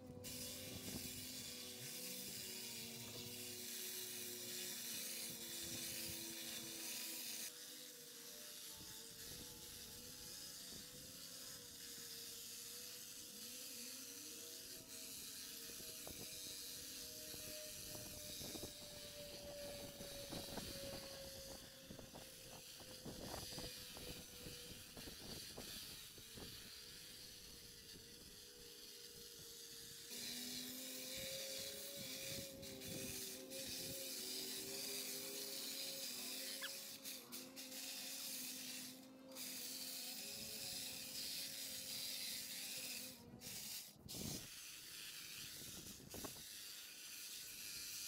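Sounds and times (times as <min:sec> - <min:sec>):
small petrol engine running: 0:00.0 - 0:48.0
hiss: 0:00.2 - 0:48.0.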